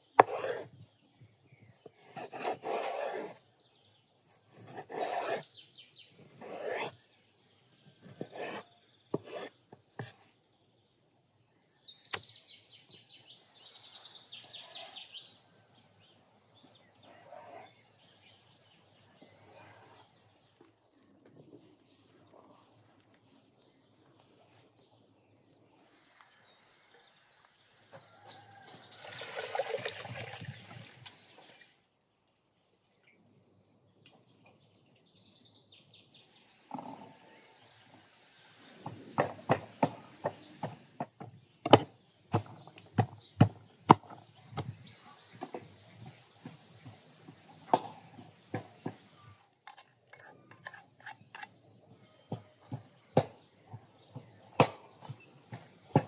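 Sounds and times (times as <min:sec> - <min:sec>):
spoon scraping: 0:49.7 - 0:51.6.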